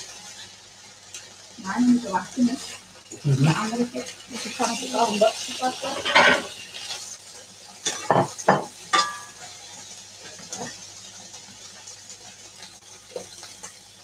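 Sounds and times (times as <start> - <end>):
food sizzling in pans: 0.0 - 14.0
utensils clinking against pans: 2.1 - 7.1, 7.8 - 9.6, 10.2 - 10.8.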